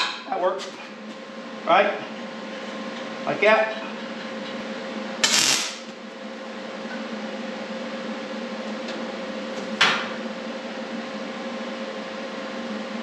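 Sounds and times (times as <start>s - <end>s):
steady hum: 5.0s - 6.6s.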